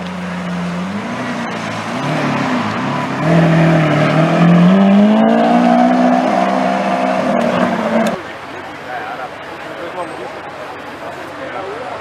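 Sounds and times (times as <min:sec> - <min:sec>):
car engine accelerating: 0:00.0 - 0:08.3.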